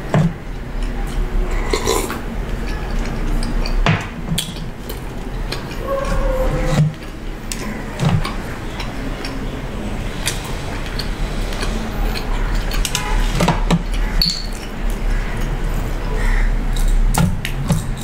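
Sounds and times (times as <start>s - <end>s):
person chewing: 0.5s - 15.7s
clinks against plate and glass: 14.2s - 14.6s.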